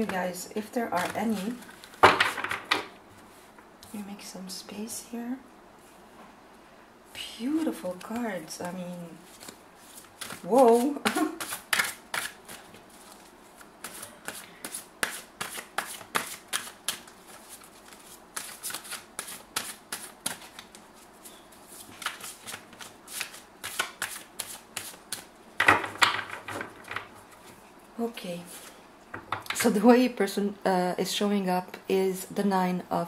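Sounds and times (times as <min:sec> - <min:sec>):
cards being shuffled: 0:00.9 - 0:02.8, 0:07.6 - 0:21.1, 0:21.7 - 0:25.3.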